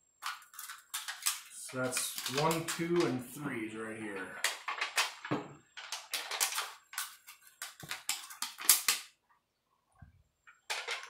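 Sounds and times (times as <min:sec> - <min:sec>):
thin metal crinkling and clicking: 0:00.2 - 0:03.2, 0:04.4 - 0:09.0, 0:10.4 - 0:11.0.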